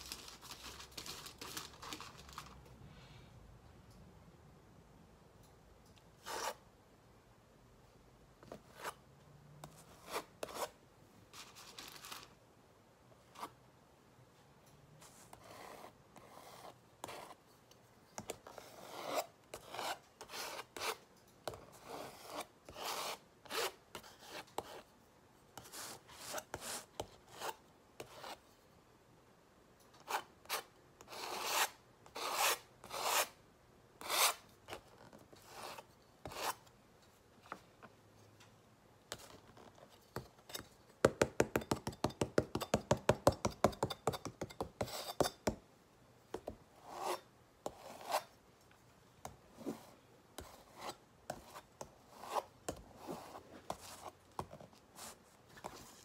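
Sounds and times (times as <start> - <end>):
palette knife scraping paint: 6.2 - 6.6, 8.6 - 9.0, 9.6 - 10.8, 15.0 - 17.5, 18.2 - 24.9, 25.6 - 28.5, 30.0 - 33.4, 34.0 - 36.7, 39.1 - 45.5, 46.8 - 48.4, 49.5 - 56.0.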